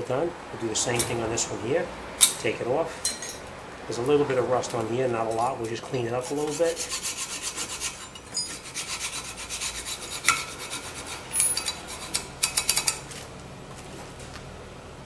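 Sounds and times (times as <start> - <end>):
hand file scraping metal: 5.4 - 13.0
sharp metal clicks: 11.3 - 13.0.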